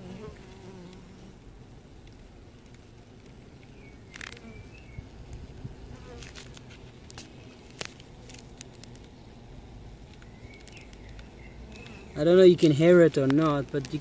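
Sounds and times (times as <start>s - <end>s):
bees buzzing faintly: 0.0s - 14.0s
bees gnawing polystyrene clicks: 0.1s - 1.1s, 2.0s - 4.6s, 6.0s - 9.2s, 10.0s - 14.0s.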